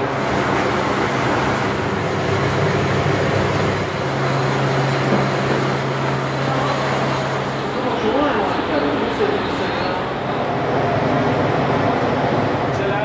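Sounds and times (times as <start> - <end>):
mixing machine motor hum: 0.0 - 13.0.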